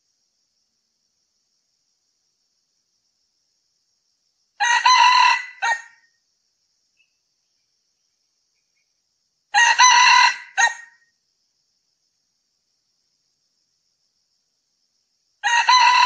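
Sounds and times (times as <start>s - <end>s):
rooster crowing: 4.6s - 6.0s, 9.5s - 11.0s, 15.4s - 16.0s.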